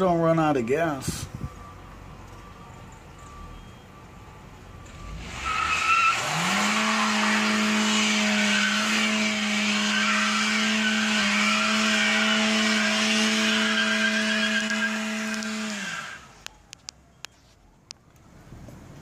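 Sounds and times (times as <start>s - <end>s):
car engine revving high: 4.9s - 16.4s.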